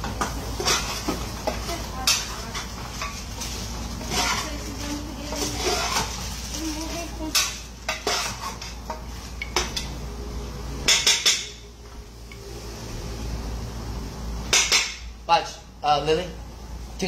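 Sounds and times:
metal spoon scraping pot: 0:04.0 - 0:06.3, 0:07.3 - 0:09.9.

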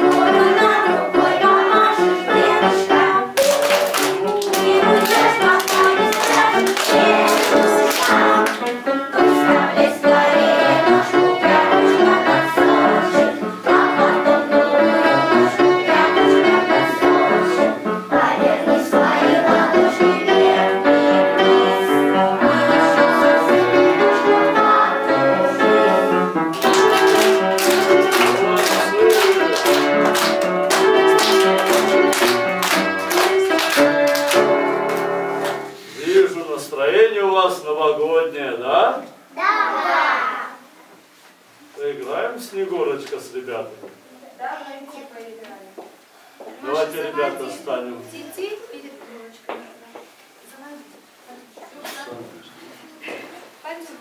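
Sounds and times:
lively music with steady beat: 0:00.0 - 0:35.9.

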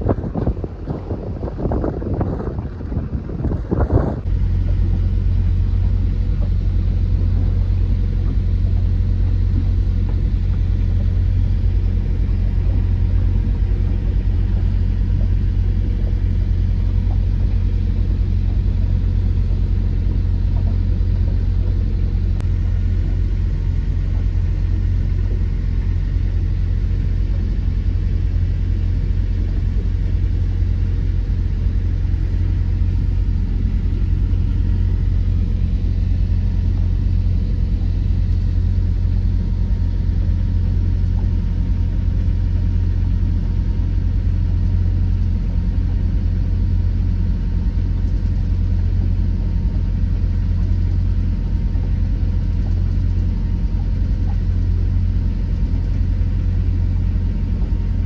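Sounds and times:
boat engine running: 0:00.0 - 0:58.0.

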